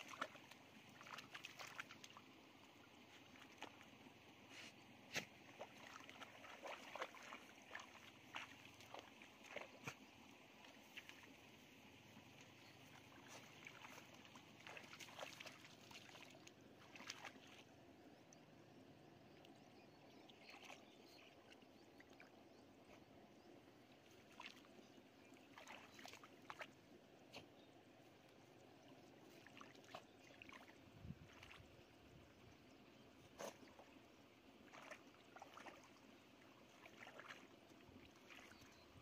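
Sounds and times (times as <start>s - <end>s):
hands splashing in muddy water: 0.0s - 2.3s, 5.1s - 10.0s, 12.9s - 17.6s, 34.6s - 36.0s, 36.6s - 38.7s
low steady background hush: 0.0s - 39.0s.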